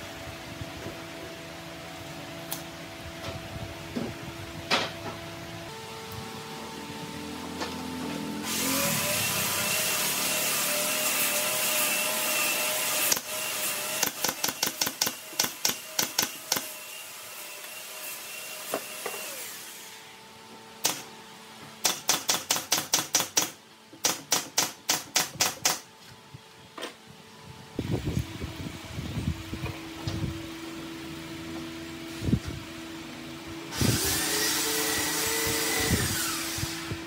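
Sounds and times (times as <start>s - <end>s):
nail gun firing into wood: 14.0s - 16.7s, 20.8s - 21.1s, 21.8s - 25.8s.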